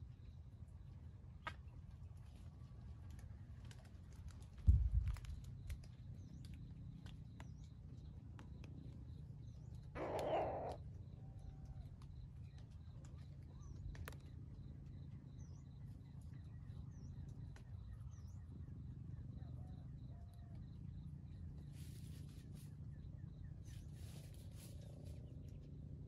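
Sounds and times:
faint high bird chirps: 9.5 - 11.8
harsh rasping call: 10.0 - 10.8
steady ticking bird call: 10.0 - 10.8.

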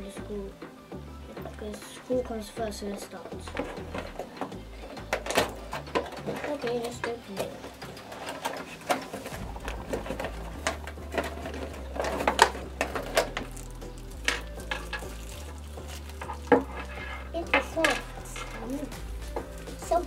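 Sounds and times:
plastic wrappers crinkling: 3.0 - 20.0
cardboard boxes being opened: 8.0 - 20.0.

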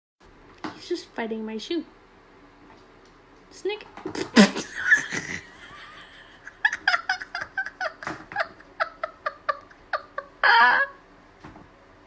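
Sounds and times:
person laughing: 4.2 - 11.0.

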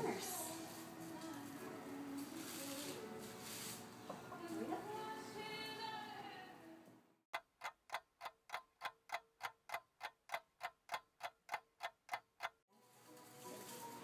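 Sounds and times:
clock ticking: 7.3 - 12.6.

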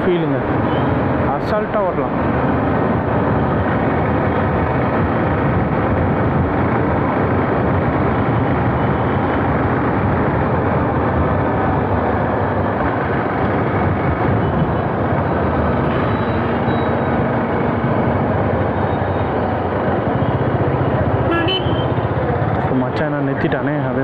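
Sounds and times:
road noise: 0.0 - 24.0
wind rush over microphone: 2.1 - 18.4.

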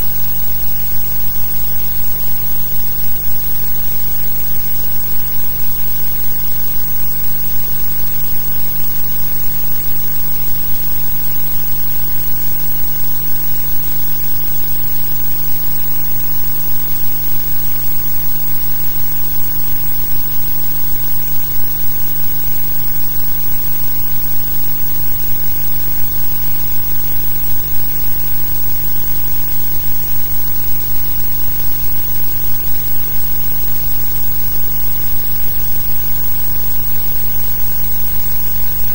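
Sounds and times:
electrical hum with hiss: 0.0 - 38.9.

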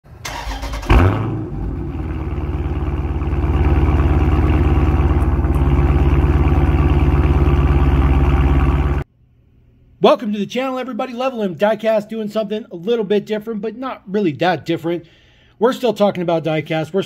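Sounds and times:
car engine starting and idling: 0.1 - 9.1.

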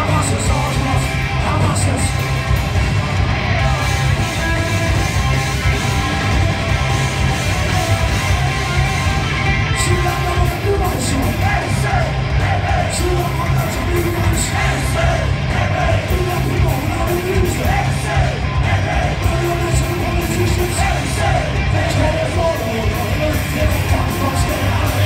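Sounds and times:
bass guitar: 0.0 - 25.0
drums: 0.0 - 25.0
electric guitars: 0.0 - 25.0
shouted vocals: 7.3 - 25.0.

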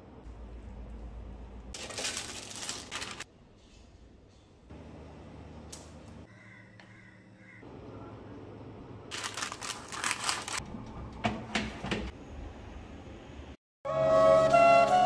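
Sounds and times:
parchment paper crackling: 1.7 - 3.3, 9.1 - 10.6.

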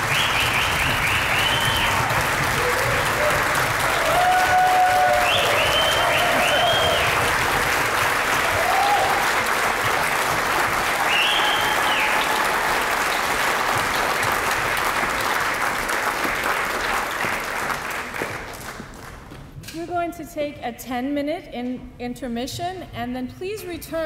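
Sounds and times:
audience applauding: 0.0 - 19.3.

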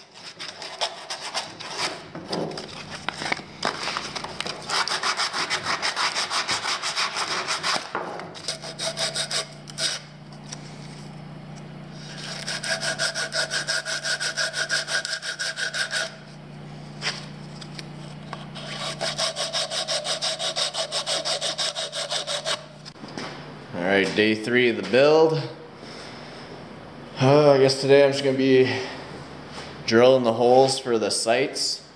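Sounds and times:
sandpaper rubbing on wood: 0.0 - 2.0, 4.6 - 10.1, 12.0 - 16.2, 18.6 - 22.7
steady low hum: 0.0 - 31.9.

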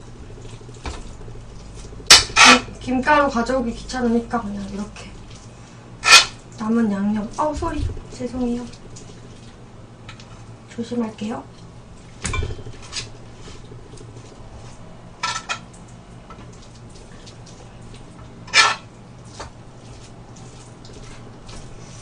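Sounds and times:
metal spoon scraping a plate: 18.5 - 18.9.

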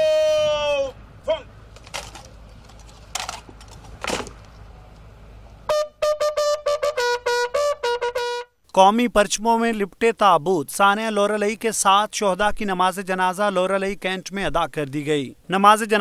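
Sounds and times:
bugle playing: 5.7 - 8.6.

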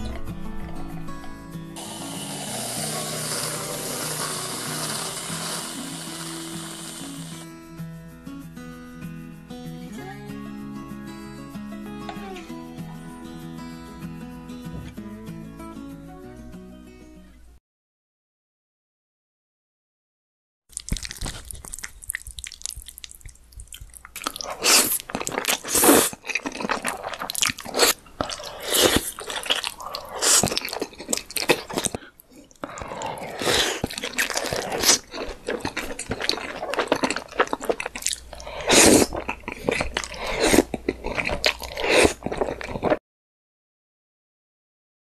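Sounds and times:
slurping and chewing noodles: 1.8 - 7.5, 20.7 - 43.0.

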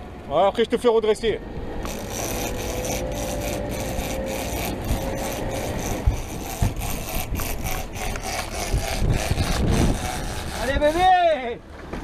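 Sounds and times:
wind on microphone: 4.0 - 11.1.

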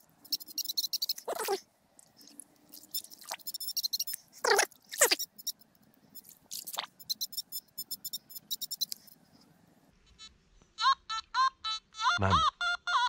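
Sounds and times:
fast high-pitched ticking: 0.0 - 1.3, 2.7 - 4.2, 5.0 - 9.2.

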